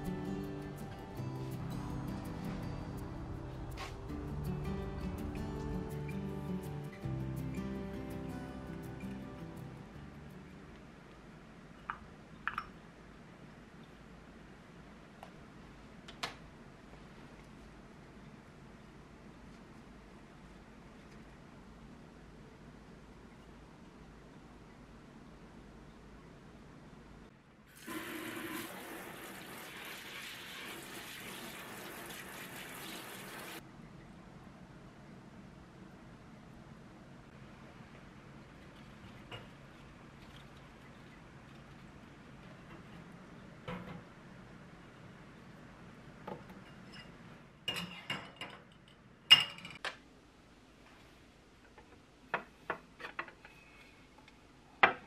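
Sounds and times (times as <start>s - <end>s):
tap spray showering water: 27.7s - 33.6s
metal kitchenware clinking: 46.6s - 49.8s.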